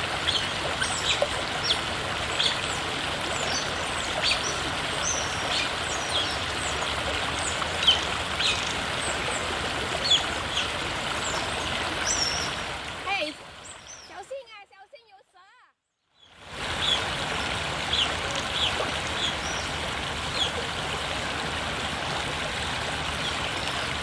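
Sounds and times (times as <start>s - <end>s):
rushing water: 0.0s - 14.3s, 16.2s - 24.0s
otters chirping: 0.2s - 6.8s, 7.4s - 8.8s.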